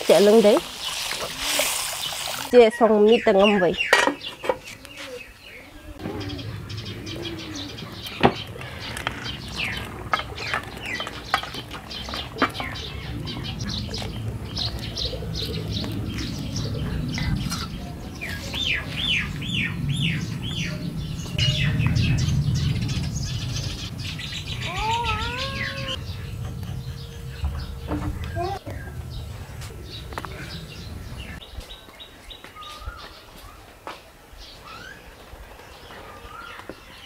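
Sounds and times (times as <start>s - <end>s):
small birds chirping: 0.1s - 37.0s
low steady rumble: 12.8s - 31.4s.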